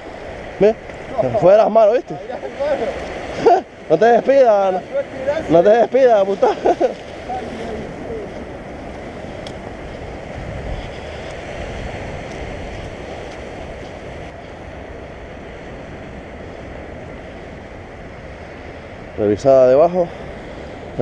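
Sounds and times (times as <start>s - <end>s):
sea surf on rocky shore: 0.0s - 21.0s
wind buffeting microphone: 0.0s - 21.0s.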